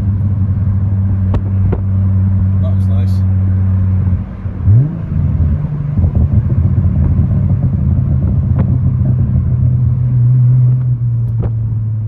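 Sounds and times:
car engine droning: 0.0s - 12.0s
wind noise: 4.0s - 11.7s.

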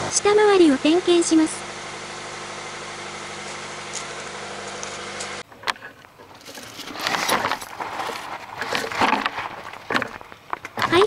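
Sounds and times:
car engine idling: 0.0s - 11.0s
handling clicks and rustling: 3.9s - 11.0s.

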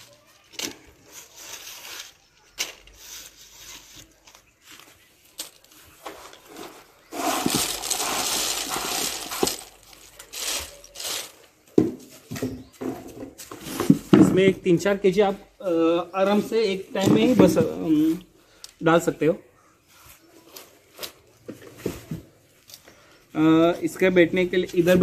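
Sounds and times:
peanuts rattling in metal hopper: 6.1s - 11.4s.

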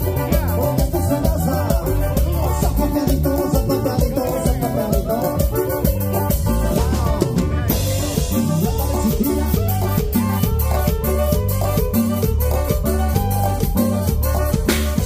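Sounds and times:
bass: 0.0s - 15.0s
steady drum beat: 0.0s - 15.0s.

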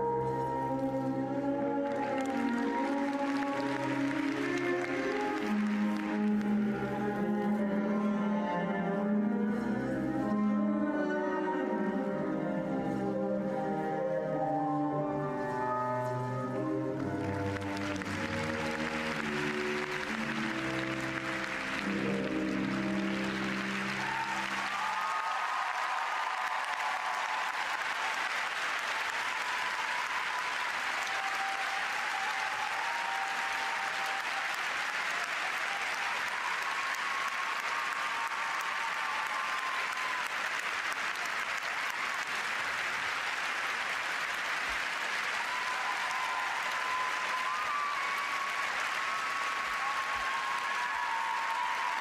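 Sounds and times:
skating program music: 0.0s - 27.4s
crowd applauding: 0.7s - 7.4s, 16.9s - 52.0s.

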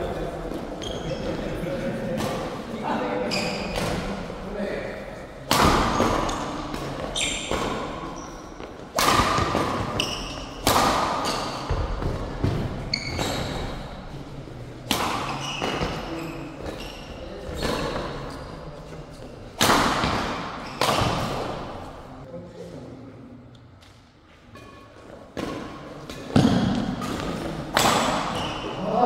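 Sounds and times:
shoes squeaking on court: 0.5s - 1.6s, 3.2s - 3.8s, 5.9s - 8.8s, 9.8s - 10.6s, 11.2s - 14.0s, 15.2s - 19.5s, 20.6s - 21.6s, 28.2s - 28.8s
rackets striking shuttlecock: 8.9s - 12.1s, 25.4s - 28.5s.

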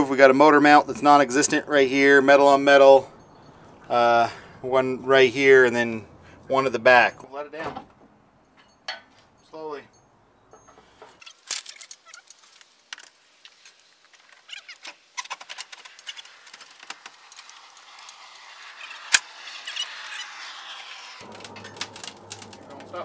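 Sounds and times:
metal chain clinking and rattling: 8.4s - 14.6s
hiss: 13.1s - 23.0s.

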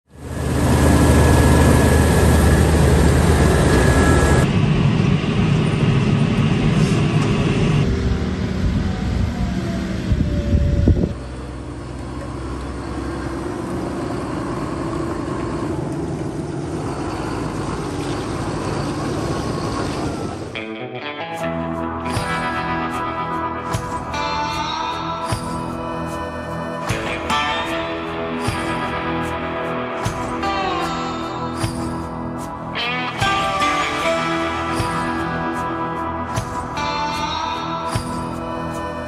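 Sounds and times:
farm vehicle engines running: 0.1s - 20.6s, 22.0s - 39.0s.

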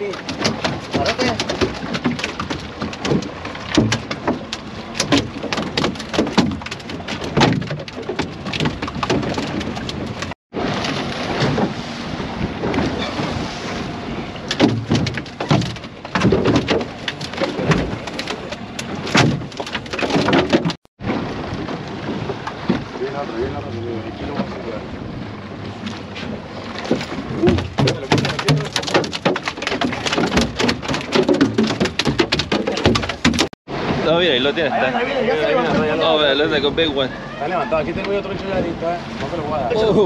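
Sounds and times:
knocks on boat: 0.0s - 13.3s, 14.4s - 23.3s, 25.8s - 34.0s
wind buffeting microphone: 0.0s - 29.3s, 33.0s - 40.0s
sea water splashing: 0.0s - 40.0s.

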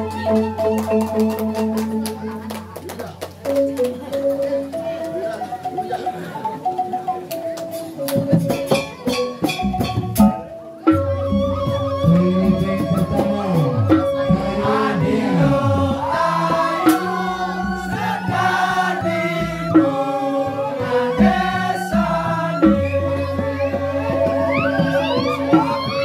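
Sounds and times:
gamelan music: 0.0s - 2.6s, 3.3s - 26.0s
kendang drums: 3.4s - 26.0s
voice singing sliding pitches: 11.3s - 26.0s.

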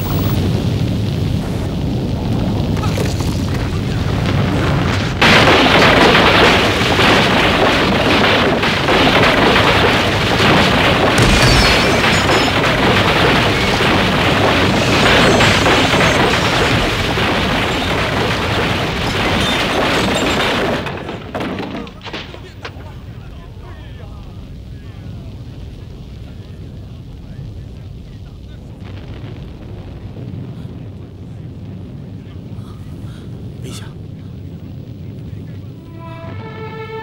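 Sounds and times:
building collapsing rumble: 0.0s - 37.0s.

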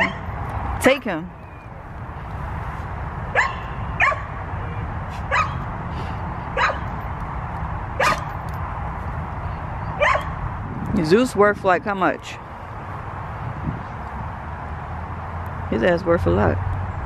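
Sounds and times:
dog barking high: 0.0s - 0.3s, 3.3s - 4.4s, 5.3s - 5.6s, 6.5s - 6.9s, 8.0s - 8.3s, 10.0s - 10.4s.

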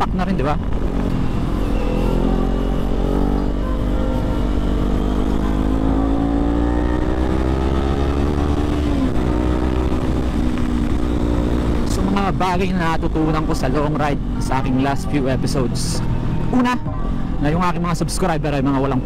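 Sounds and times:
motorcycle engine accelerating: 0.0s - 17.4s
wind rumble on microphone: 6.7s - 13.5s.

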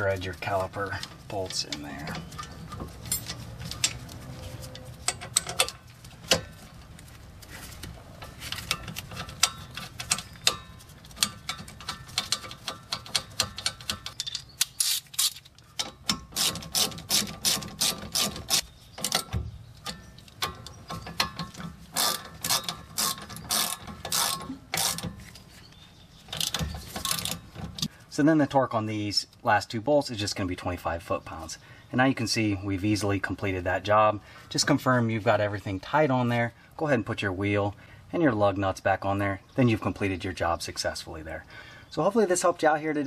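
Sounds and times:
ratchet wrench clicking: 11.2s - 15.5s, 21.9s - 25.1s.

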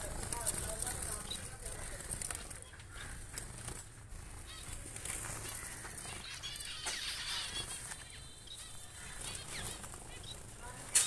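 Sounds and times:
finches chirping and calling: 0.0s - 11.0s.

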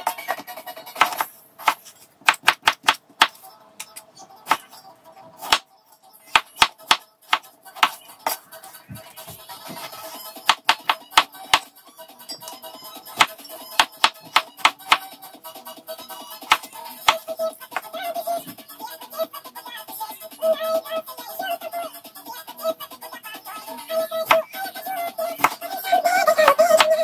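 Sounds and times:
quiet background music: 0.0s - 27.0s
knife chopping on cutting board: 9.7s - 11.7s, 13.2s - 15.0s.

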